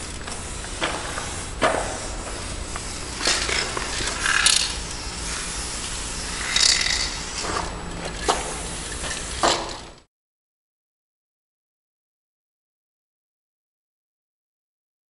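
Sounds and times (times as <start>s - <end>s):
spray can hissing: 0.0s - 9.9s.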